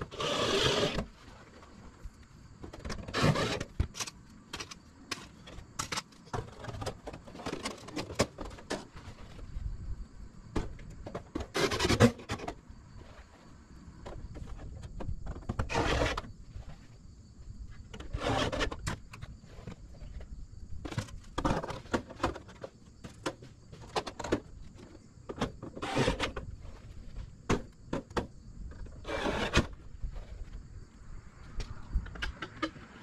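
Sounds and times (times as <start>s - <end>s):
gutter guard scraping slides: 0.0s - 1.4s, 2.8s - 6.0s, 15.6s - 16.3s, 18.0s - 19.0s, 25.7s - 26.4s, 29.0s - 30.4s.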